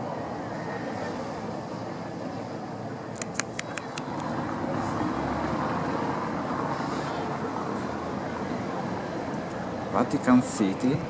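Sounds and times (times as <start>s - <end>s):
city street traffic: 0.0s - 11.0s
sharp clicks: 3.2s - 4.3s.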